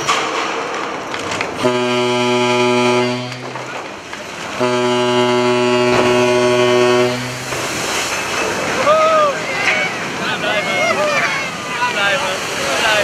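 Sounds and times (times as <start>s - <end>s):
ship's horn blasts: 1.6s - 8.1s
launch splash rushing: 1.6s - 13.0s.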